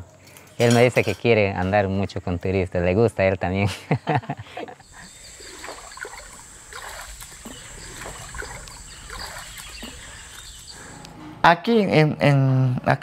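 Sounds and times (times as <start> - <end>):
water splashing in stream: 4.8 - 10.8.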